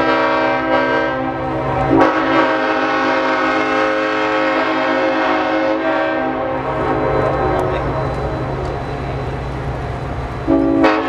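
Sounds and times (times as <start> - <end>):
train air horn chord: 0.0 - 7.7, 10.4 - 11.0
low rumble of train: 0.0 - 11.0.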